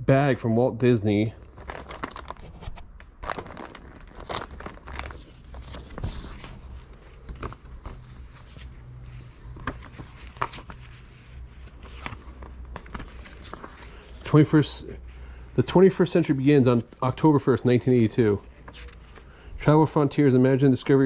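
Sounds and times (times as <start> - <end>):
low steady hum: 0.0 - 21.0
paper and bag rustling: 1.5 - 14.1.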